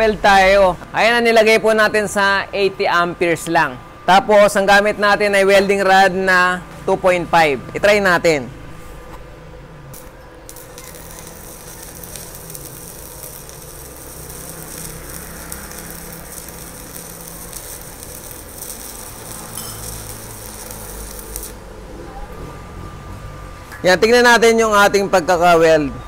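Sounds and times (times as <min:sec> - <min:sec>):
welding arc crackling and sizzling: 0:09.8 - 0:21.9.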